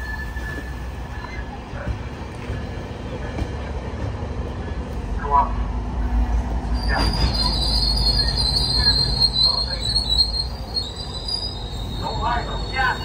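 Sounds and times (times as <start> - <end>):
train wheels squealing on rails: 0.0 - 3.7, 6.6 - 13.0
low rumble of moving train: 0.0 - 13.0.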